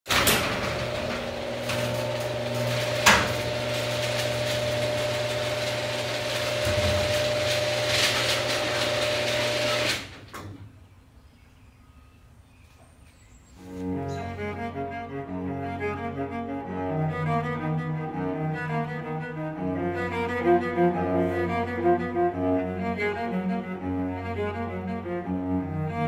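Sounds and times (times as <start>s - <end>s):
door clunk: 0.1s - 4.8s, 6.5s - 9.1s
roll-up door motor hum: 0.1s - 10.7s
door rattling: 0.1s - 10.8s.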